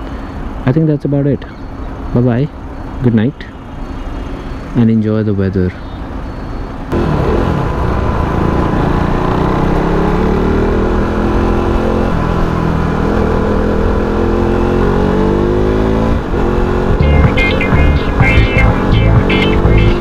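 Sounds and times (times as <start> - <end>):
motorcycle engine accelerating: 6.9 - 20.0.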